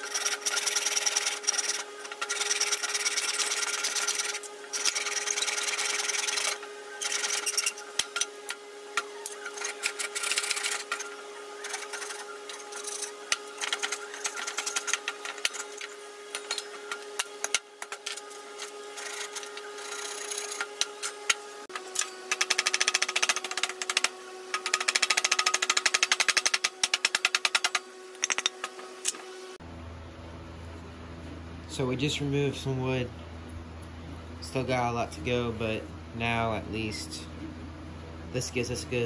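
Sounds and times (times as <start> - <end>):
hand saw cutting wood: 0.0 - 29.2.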